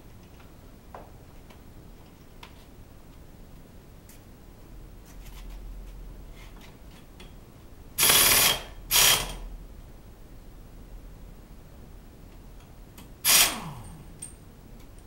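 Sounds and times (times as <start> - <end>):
compressed air tool bursts: 8.0 - 9.4, 13.2 - 14.1.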